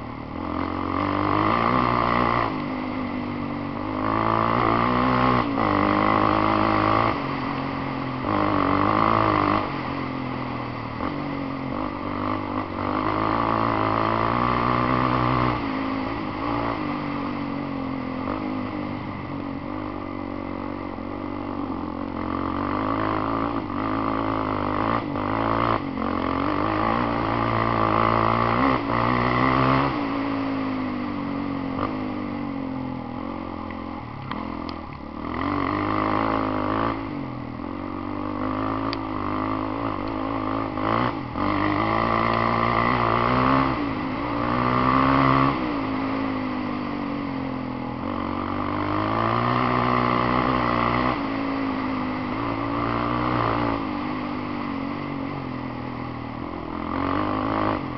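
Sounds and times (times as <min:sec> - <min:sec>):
quad bike engine revving: 0:00.0 - 0:57.9.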